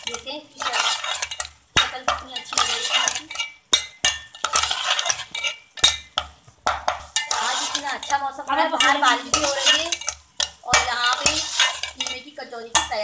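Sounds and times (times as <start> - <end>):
metal spoon scraping pot: 0.0 - 13.0
spoon knocking on metal: 0.0 - 13.0.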